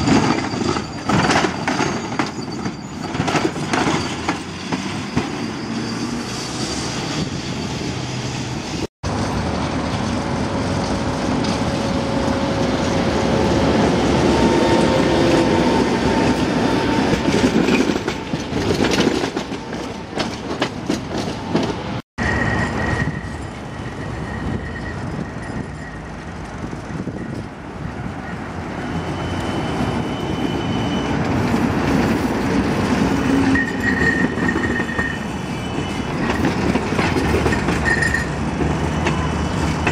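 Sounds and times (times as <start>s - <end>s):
high wheel squeals: 0.0s - 8.7s, 22.2s - 39.9s
tram wheels rumbling on rails: 0.0s - 39.9s.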